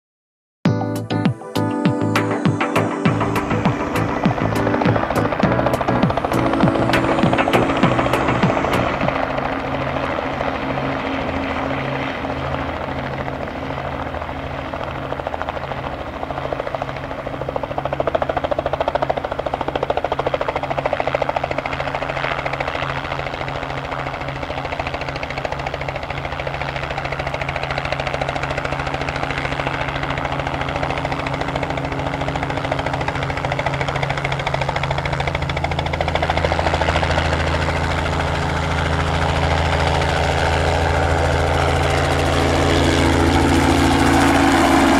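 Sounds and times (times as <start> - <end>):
helicopter rotor beat: 0.8 - 44.9
piston engine drone: 1.7 - 10.9, 30.4 - 44.9.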